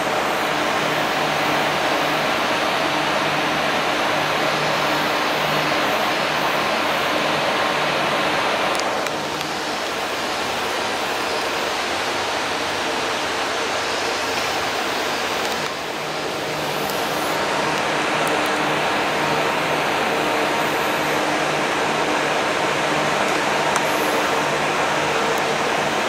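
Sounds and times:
machine hiss: 0:00.0 - 0:26.0.

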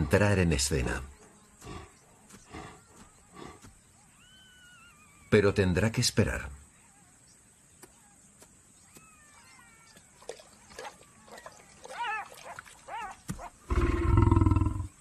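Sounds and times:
lioness growling: 0:12.0 - 0:15.0.

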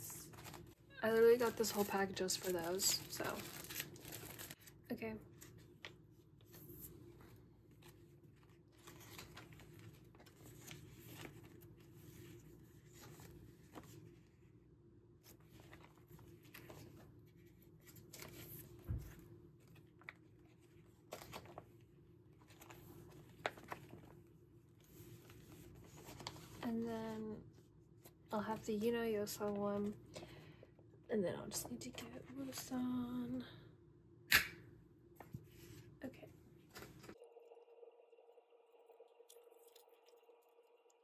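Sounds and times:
plastic sleeves rustling: 0:00.0 - 0:14.5.

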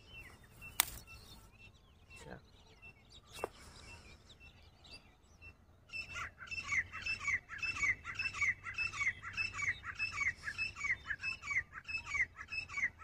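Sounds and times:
faint bird chirps: 0:00.0 - 0:13.0.

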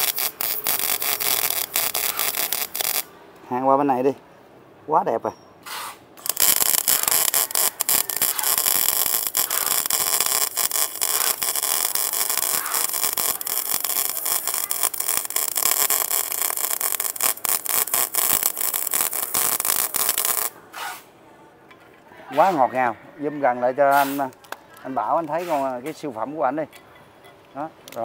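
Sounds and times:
welding arc crackling: 0:00.0 - 0:03.1, 0:05.7 - 0:21.0.

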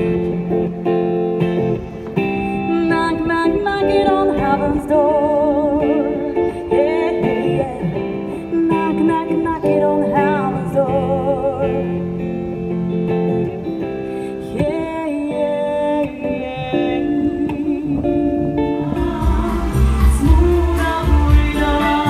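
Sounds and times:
guitar chords: 0:00.0 - 0:22.0
woman singing wordless notes: 0:02.6 - 0:12.6, 0:14.2 - 0:22.0
heavy bass: 0:18.8 - 0:22.0.

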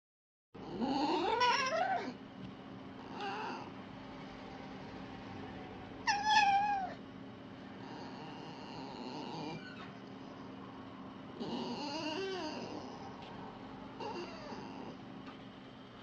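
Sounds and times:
fox whining calls: 0:00.8 - 0:02.2, 0:03.1 - 0:03.7, 0:06.1 - 0:07.0, 0:11.4 - 0:13.1, 0:14.0 - 0:15.0.

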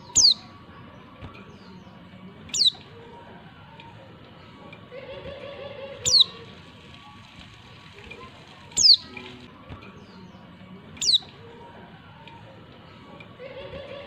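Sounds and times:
short high bird calls: 0:08.8 - 0:09.2.

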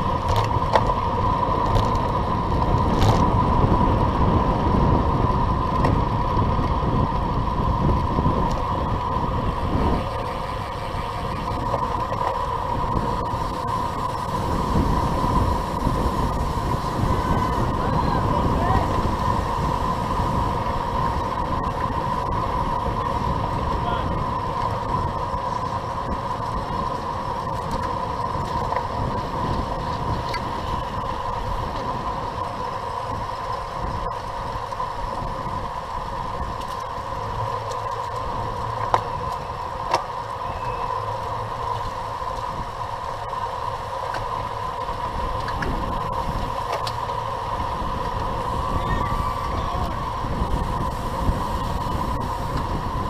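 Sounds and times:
wind on microphone: 0:00.0 - 0:37.4, 0:47.4 - 0:53.0
bicycle road and drivetrain noise: 0:00.0 - 0:53.0
steady high hum: 0:00.0 - 0:53.0.

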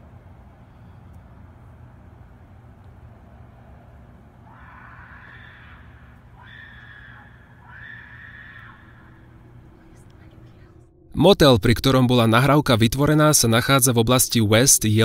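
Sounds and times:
steady low hum: 0:00.0 - 0:15.0
animal screaming: 0:04.4 - 0:10.0.

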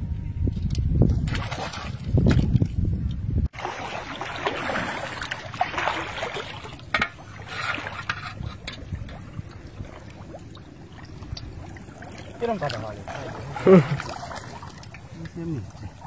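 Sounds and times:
water sloshing and trickling: 0:00.6 - 0:16.0.

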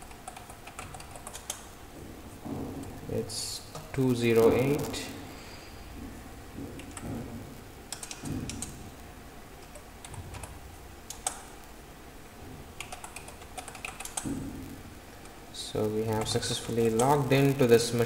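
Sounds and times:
computer keyboard typing: 0:00.0 - 0:01.7, 0:06.7 - 0:07.1, 0:07.9 - 0:08.8, 0:09.6 - 0:11.5, 0:12.8 - 0:14.3, 0:16.0 - 0:17.3.

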